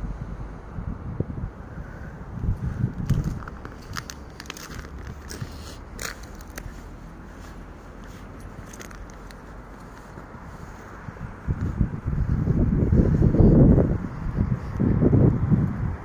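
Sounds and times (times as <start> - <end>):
low steady rumble: 0.0 - 16.0
footsteps crunching in snow: 3.0 - 13.4.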